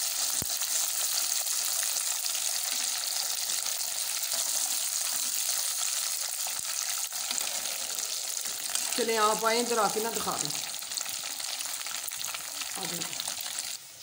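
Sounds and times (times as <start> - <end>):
hot oil sizzling: 0.0 - 14.0.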